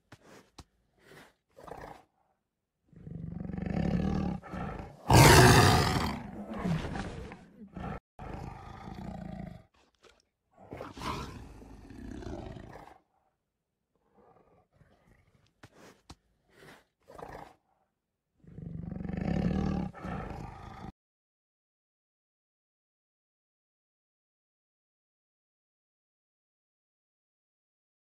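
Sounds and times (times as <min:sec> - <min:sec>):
tiger growling: 0:00.2 - 0:09.9, 0:10.5 - 0:17.8, 0:18.4 - 0:20.9
tiger roar: 0:02.8 - 0:09.8, 0:10.6 - 0:17.7, 0:18.4 - 0:20.9.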